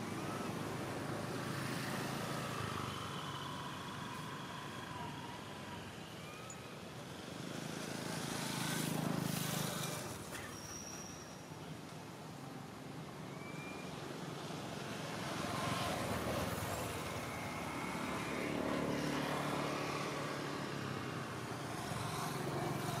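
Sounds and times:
vehicle engine passing by: 15.3s - 23.0s.

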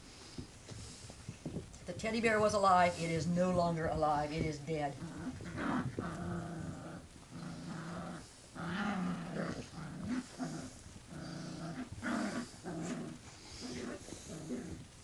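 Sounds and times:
puppy growling in play: 4.7s - 15.0s.

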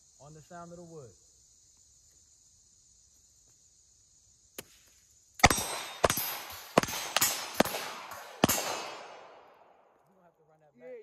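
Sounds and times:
crickets chirping: 0.0s - 11.0s
pistol shots echoing: 5.4s - 9.9s.

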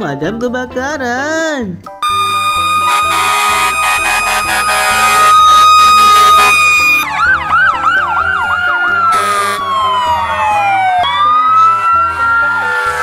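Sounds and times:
background music with low notes: 0.0s - 13.0s
steady held tone: 2.0s - 7.1s
fire truck sirens: 2.0s - 13.0s.

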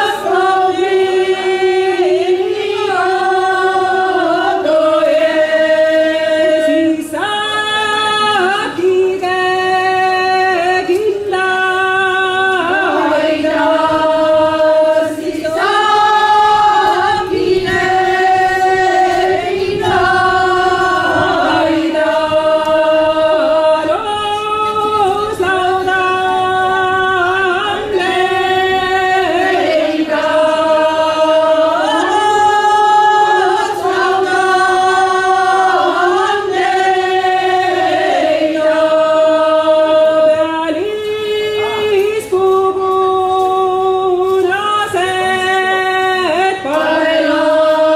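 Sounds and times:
women singing unaccompanied: 0.0s - 47.9s.

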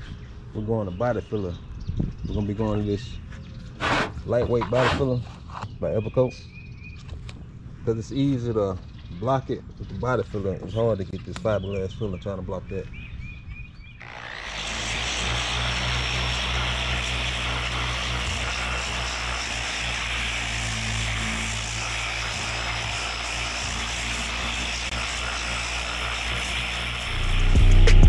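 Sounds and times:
electric sander running: 14.0s - 28.0s.

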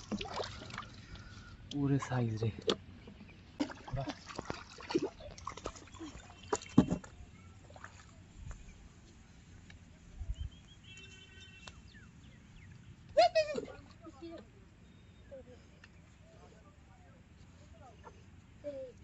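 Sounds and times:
hands splashing in water: 0.0s - 1.3s, 3.6s - 7.1s.

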